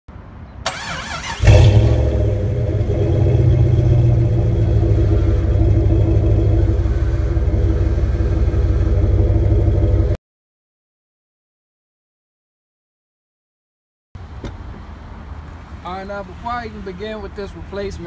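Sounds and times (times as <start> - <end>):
engine cranking: 0.7 - 6.6
engine rumbling idle: 1.4 - 10.2.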